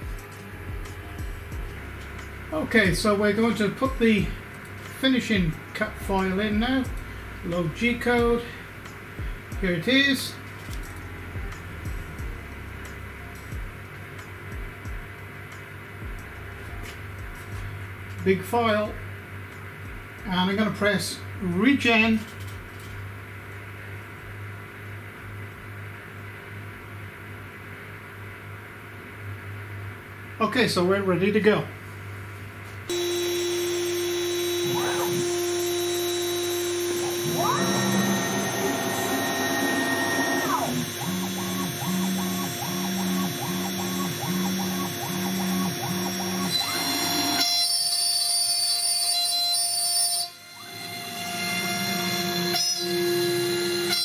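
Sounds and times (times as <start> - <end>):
music: 0.0 - 20.5, 34.5 - 46.6
low electrical hum: 0.0 - 48.5
stepper motors whining: 32.9 - 48.3
router spindle whine: 32.9 - 54.0.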